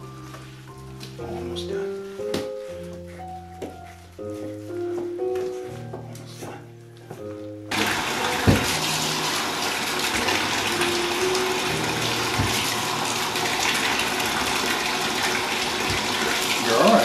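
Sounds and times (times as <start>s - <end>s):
faucet running into bathtub: 7.7s - 17.0s.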